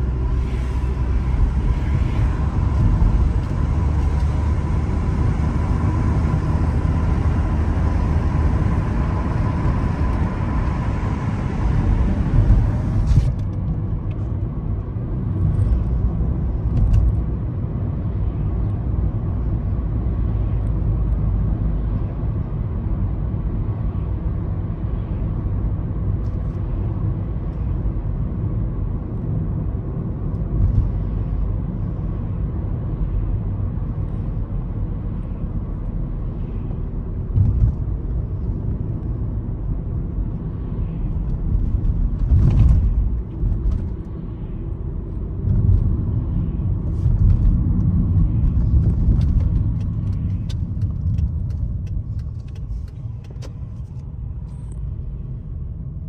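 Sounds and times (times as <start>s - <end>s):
wind and tyre hiss: 0.0s - 14.5s
low road and engine rumble: 0.0s - 56.0s.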